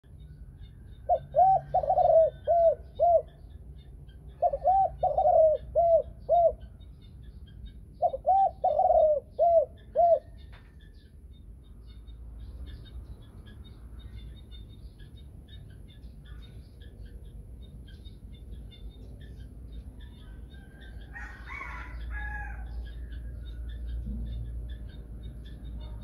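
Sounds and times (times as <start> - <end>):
dove cooing: 1.1 - 3.6, 4.3 - 6.8, 8.0 - 11.0, 20.0 - 24.9.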